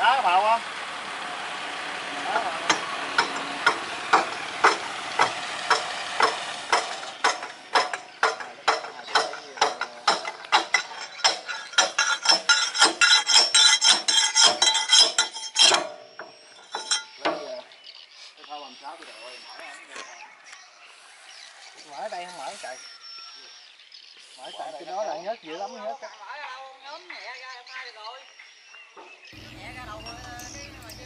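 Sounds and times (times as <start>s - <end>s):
rapid metallic clicking of hand tool: 2.7s - 17.4s.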